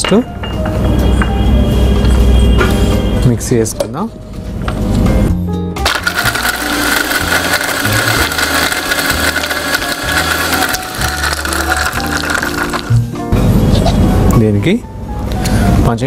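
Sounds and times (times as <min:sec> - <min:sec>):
mixer grinder whining: 0:05.8 - 0:12.9.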